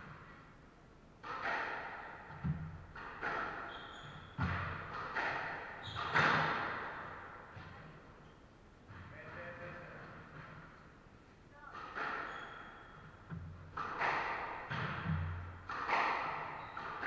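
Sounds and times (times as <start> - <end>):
squash ball hits echoing: 1.2 - 8.1, 11.6 - 17.0
sneakers squeaking on wooden floor: 2.4 - 11.0, 11.8 - 17.0.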